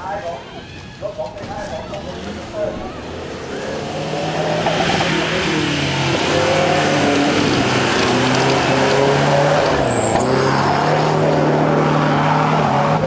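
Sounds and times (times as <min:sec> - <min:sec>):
pickup engine revving: 0:01.2 - 0:13.0.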